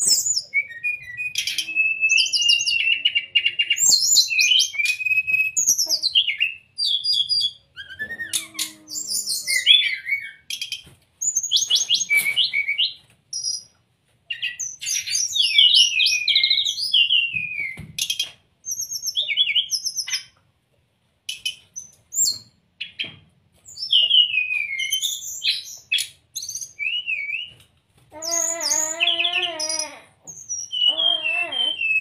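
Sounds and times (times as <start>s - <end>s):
lower wavering bird call: 30.7s - 32.0s.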